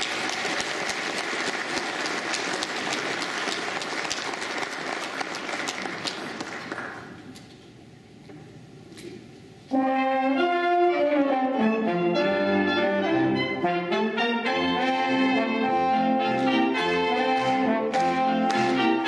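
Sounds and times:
applause: 0.0 - 7.3, 17.4 - 19.0
brass ensemble held chord: 9.7 - 19.0.

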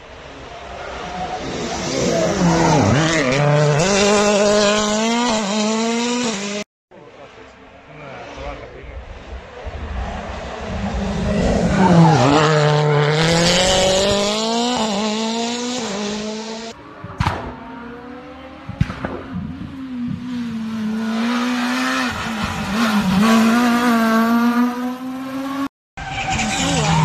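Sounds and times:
rally car engines revving: 0.1 - 27.0
sharp bangs: 17.0 - 17.9, 18.6 - 19.9.

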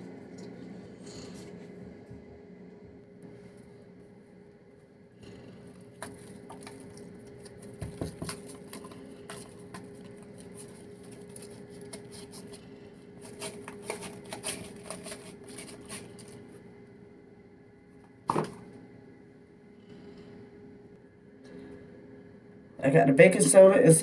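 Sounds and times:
faint steady hum: 0.0 - 24.0
cardboard box shaken and tapped: 7.4 - 9.9.

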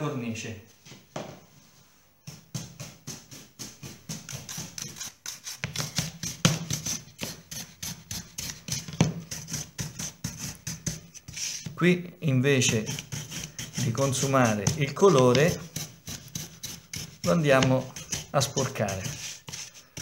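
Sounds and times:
shoe brush scrubbing wood frame: 12.7 - 20.0.

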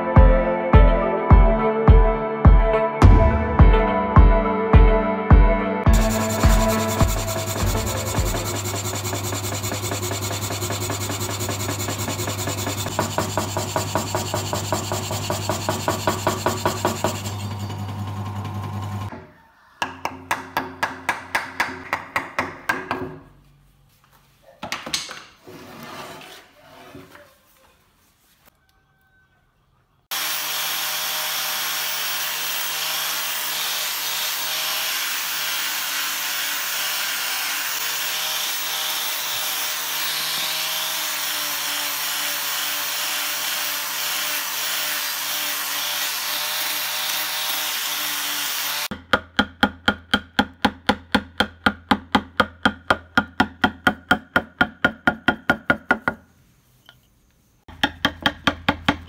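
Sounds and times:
angle grinder sanding wood: 5.9 - 19.1, 30.1 - 48.9
mallet tapping chisel into wood: 48.9 - 56.2, 57.7 - 59.0.

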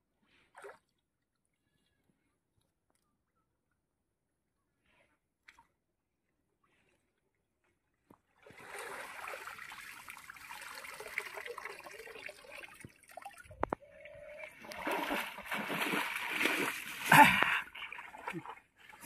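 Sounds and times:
water trickling and splashing: 8.4 - 19.0.

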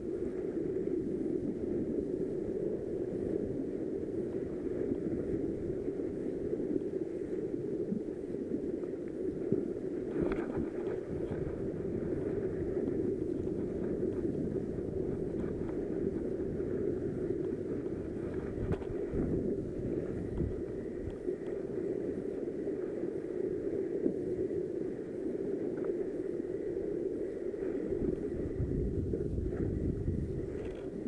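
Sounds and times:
sea: 0.0 - 31.0
wind at microphone: 0.0 - 31.0
faint knocks of rod and reel: 30.5 - 31.0.

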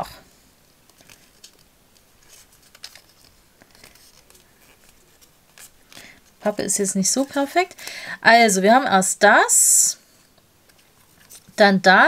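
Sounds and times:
cardboard being folded and creased: 0.8 - 6.6.

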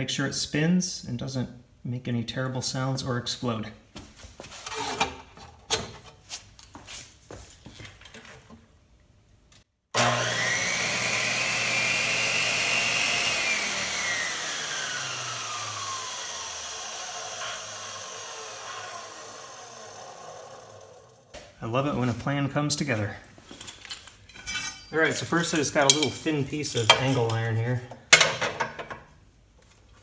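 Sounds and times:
cut-off saw motor whine: 10.0 - 21.3.

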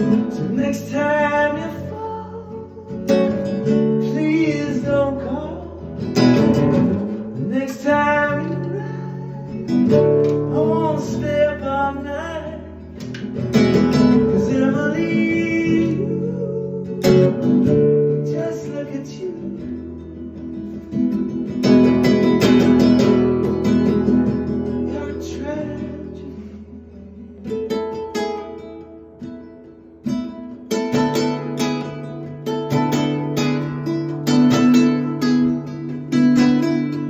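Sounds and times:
man singing: 0.0 - 21.3, 23.8 - 28.7
strummed acoustic guitar: 0.0 - 37.0.

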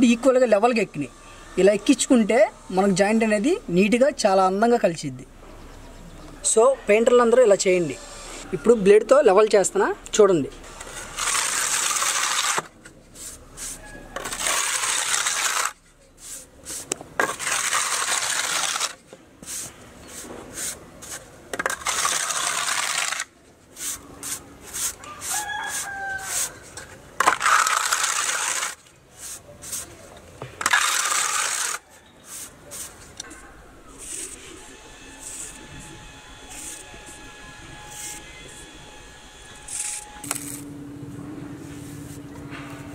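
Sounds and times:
steel blade scraping putty on wall: 10.6 - 29.9, 30.6 - 40.6.

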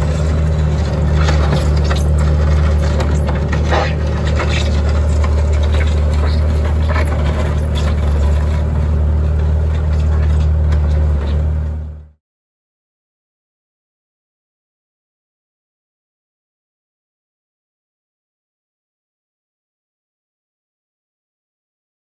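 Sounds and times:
diesel engine running: 0.0 - 12.2.

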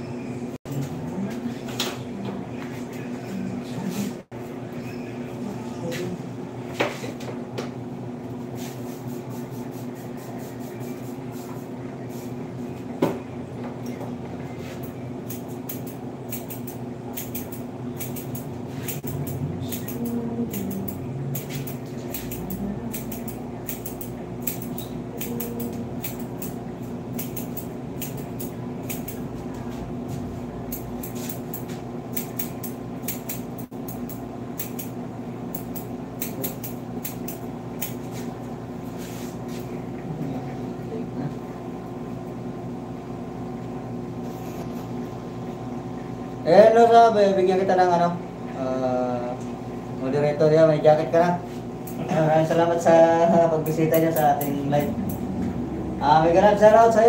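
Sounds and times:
low electric hum: 0.0 - 57.0
scissors snipping hair: 14.8 - 29.3, 30.7 - 38.2, 53.6 - 55.3.

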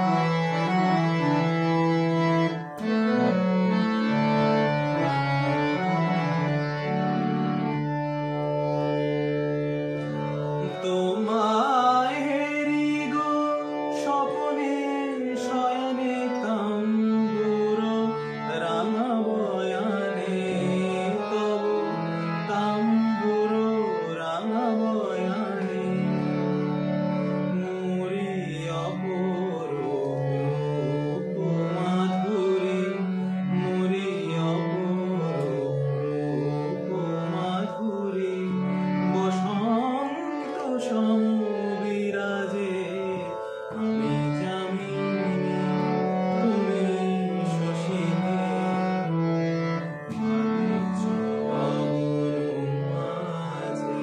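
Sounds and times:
man singing slow song: 10.6 - 26.3, 27.5 - 45.6, 46.3 - 48.9, 49.8 - 54.0.

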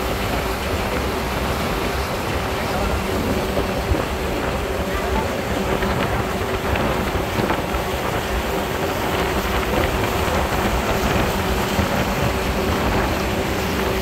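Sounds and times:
boat engine hum: 0.0 - 14.0
churning wake rushing: 0.0 - 14.0
wind buffeting microphone: 0.0 - 14.0.

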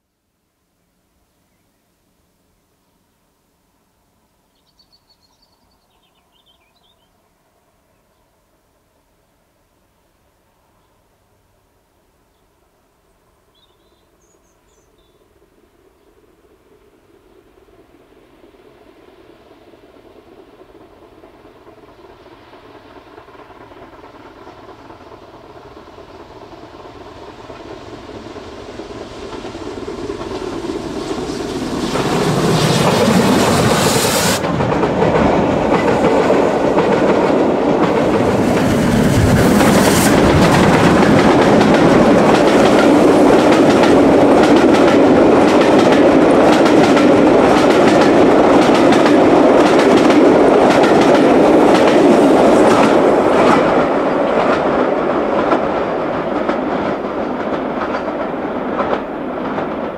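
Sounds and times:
steam locomotives passing: 2.3 - 59.9
wheels clicking over rail joints: 31.9 - 59.9.

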